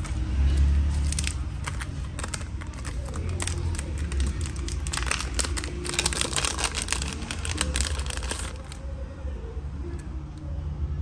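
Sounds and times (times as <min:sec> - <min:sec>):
foil bag crinkling: 0:00.0 - 0:08.8.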